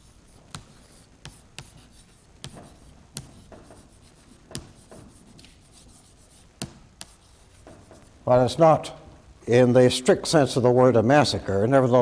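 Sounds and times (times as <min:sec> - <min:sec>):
chalk scratching on blackboard: 0:00.0 - 0:08.2
chalk tapping on blackboard: 0:00.0 - 0:08.2.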